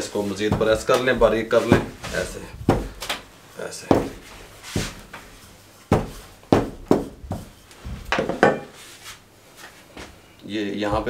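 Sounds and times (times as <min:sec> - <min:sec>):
rolling pin knocking on wood: 0:00.4 - 0:03.2, 0:03.9 - 0:05.2, 0:05.9 - 0:08.7.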